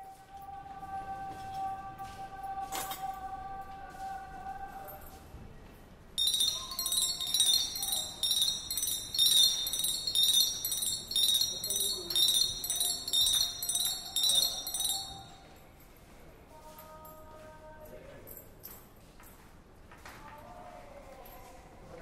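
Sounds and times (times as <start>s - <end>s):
high metallic chiming: 6.2s - 15.6s.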